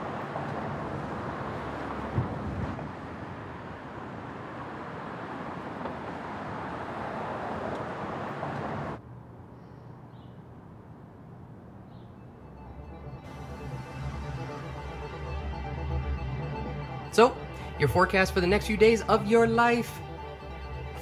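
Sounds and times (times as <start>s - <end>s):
street traffic noise: 0.0s - 13.8s
low hum: 12.3s - 21.0s.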